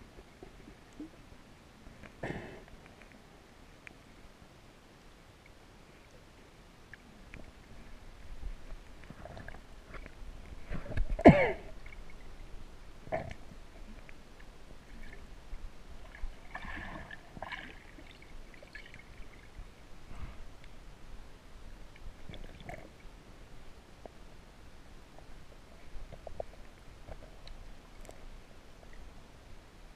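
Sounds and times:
faint underwater water movement: 0.0s - 29.9s
small underwater clicks and knocks: 1.9s - 4.0s, 6.9s - 12.3s, 13.1s - 19.3s, 25.1s - 29.1s.

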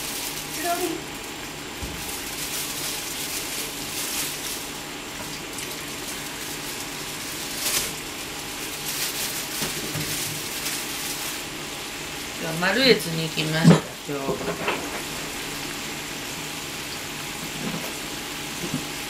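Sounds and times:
loud oil crackle: 0.0s - 12.5s
oil sizzling and bubbling: 0.0s - 19.0s.

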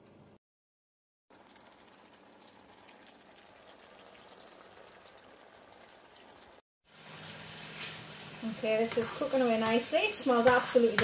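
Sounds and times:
tofu sizzling in oil: 6.9s - 11.0s.

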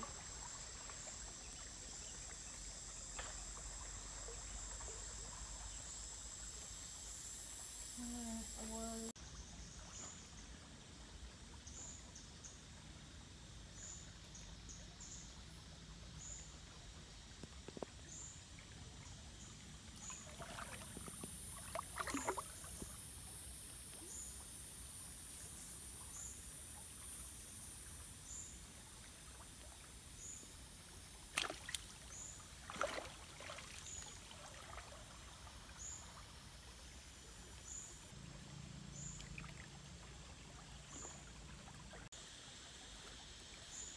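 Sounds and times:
fish splashing in water: 20.0s - 22.9s, 31.3s - 35.2s.

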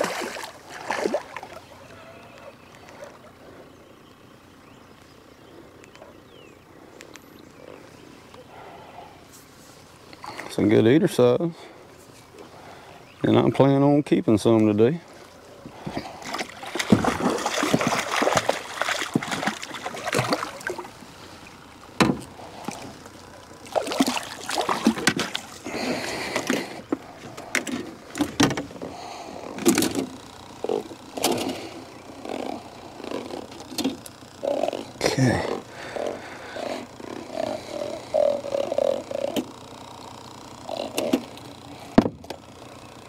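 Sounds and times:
fish splashing at water surface: 0.0s - 1.6s, 16.2s - 20.9s, 23.6s - 26.6s.

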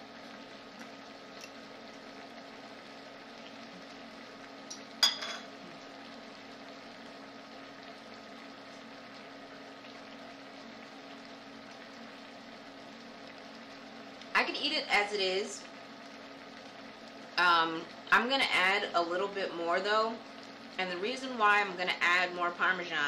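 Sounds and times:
sauce sizzling in a pan: 0.0s - 23.0s
fork clinking on ceramic plate: 5.0s - 5.5s.

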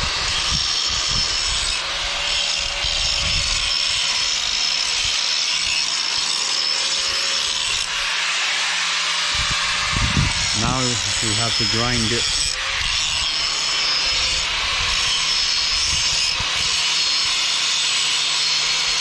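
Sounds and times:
power tool grinding: 0.0s - 19.0s.

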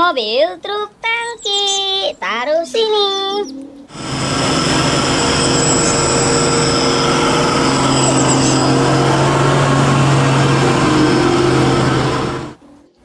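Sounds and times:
diesel truck engine droning: 3.9s - 12.6s
road noise: 3.9s - 12.6s.

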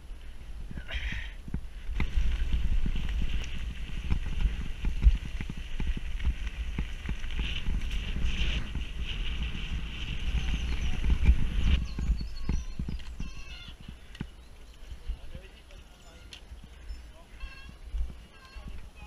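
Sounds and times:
bike rumbling over rough ground: 1.4s - 16.7s
bike knocks and rattles: 1.5s - 9.5s.

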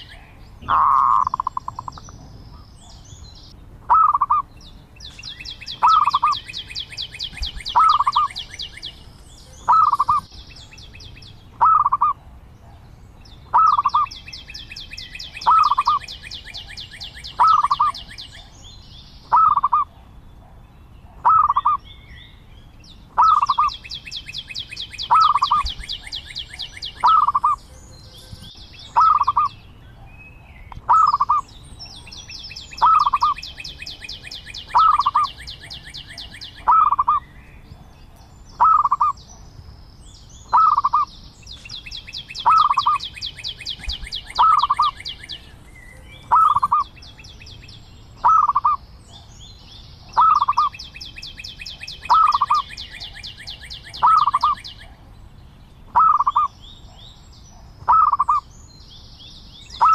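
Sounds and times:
dove cooing: 0.0s - 2.4s, 3.9s - 4.4s, 5.8s - 6.4s, 7.4s - 8.5s, 9.6s - 10.3s, 11.6s - 12.3s, 13.5s - 14.1s, 15.4s - 16.7s, 17.3s - 18.1s, 19.3s - 20.0s, 21.2s - 21.8s, 23.2s - 23.7s, 25.1s - 27.6s, 29.0s - 29.5s, 30.9s - 31.4s, 32.8s - 37.2s, 38.6s - 39.2s, 40.5s - 41.1s, 43.8s - 45.4s, 46.2s - 46.9s, 48.2s - 48.8s, 50.2s - 50.7s, 51.7s - 54.9s, 56.0s - 56.5s, 57.9s - 58.4s
high fast bird trill: 0.0s - 2.7s, 3.9s - 4.4s, 5.0s - 9.0s, 9.6s - 10.8s, 11.6s - 12.2s, 13.4s - 18.4s, 19.2s - 19.9s, 21.2s - 21.8s, 23.2s - 29.6s, 30.9s - 37.4s, 38.5s - 39.2s, 40.4s - 45.4s, 46.2s - 47.1s, 48.2s - 48.8s, 50.1s - 54.8s, 55.9s - 56.6s, 57.8s - 58.5s, 59.7s - 59.9s.

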